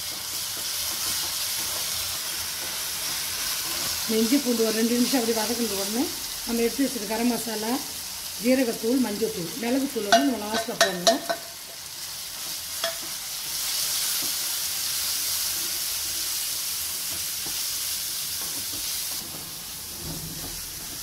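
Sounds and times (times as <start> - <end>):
food sizzling in oil: 0.0 - 21.0
spatula stirring in pan: 9.8 - 21.0.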